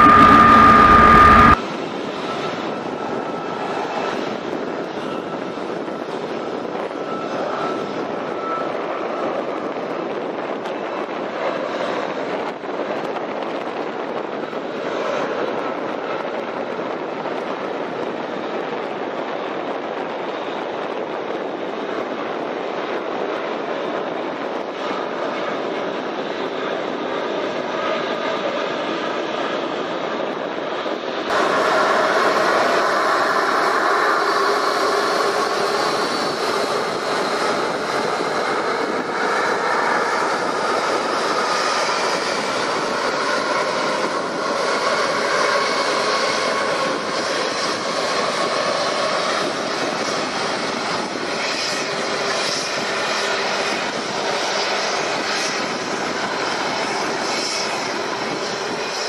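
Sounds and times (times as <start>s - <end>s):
helicopter flying past: 0.0s - 9.9s, 23.6s - 59.0s
high turbine whine: 0.0s - 59.0s.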